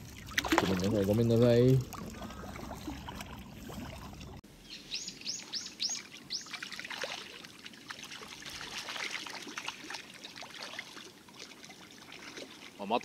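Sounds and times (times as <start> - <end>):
water splashing and trickling: 0.0 - 13.0
bird chirping: 4.6 - 6.6.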